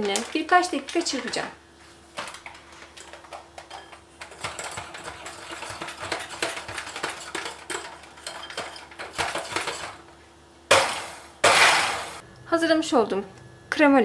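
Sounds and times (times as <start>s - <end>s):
beaters clattering against glass: 3.0s - 10.0s.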